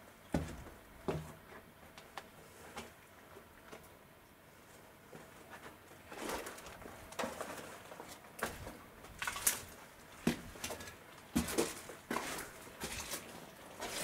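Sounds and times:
footsteps on rubble: 6.1s - 14.0s.

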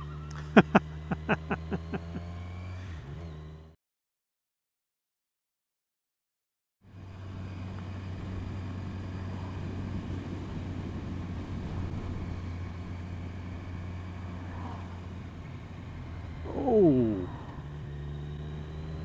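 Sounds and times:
road and wind noise: 0.0s - 3.8s, 6.8s - 19.0s.

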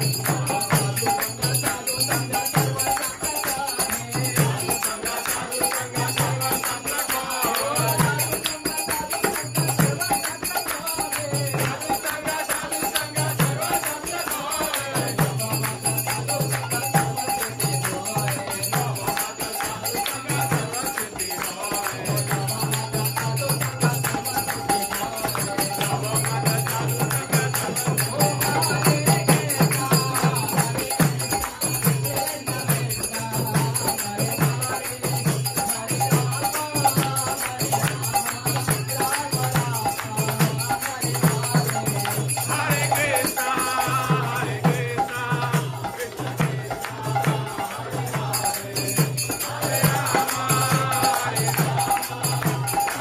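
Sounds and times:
drum beating steady rhythm: 0.0s - 53.0s
group singing chant: 0.0s - 53.0s
hand cymbals jingling: 0.0s - 53.0s.

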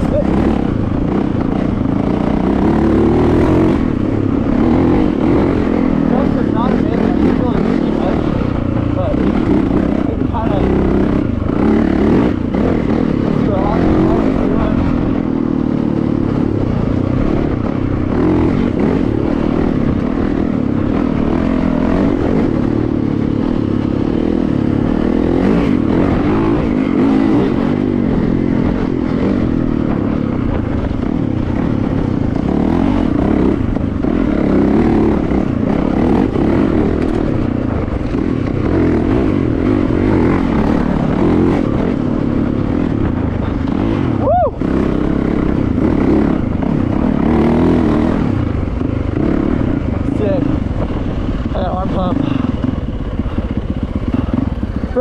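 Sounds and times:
dirt bike engine running hard: 0.0s - 55.0s.

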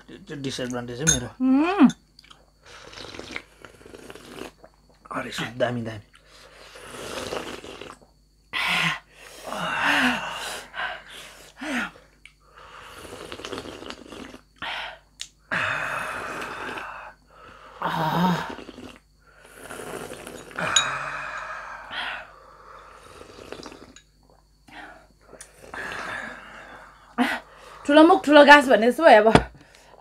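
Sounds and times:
person humming: 1.4s - 2.0s
breathy gasps and slurps: 24.7s - 27.8s.

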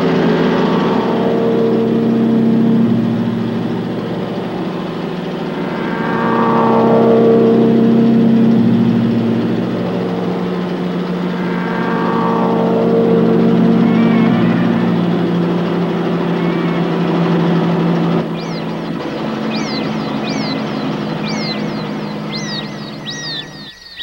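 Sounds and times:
diesel engine running: 0.0s - 24.0s.

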